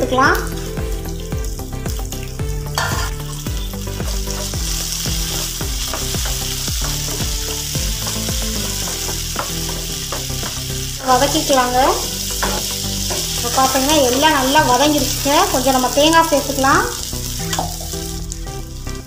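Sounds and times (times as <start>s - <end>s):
food sizzling in oil: 0.0s - 19.0s
spatula scraping and tapping pan: 4.0s - 10.8s, 12.3s - 13.9s.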